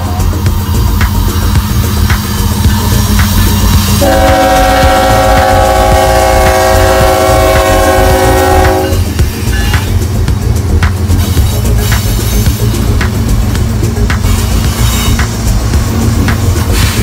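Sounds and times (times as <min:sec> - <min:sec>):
freight locomotives rumbling: 0:00.0 - 0:17.0
locomotive air horn blast: 0:03.9 - 0:09.7.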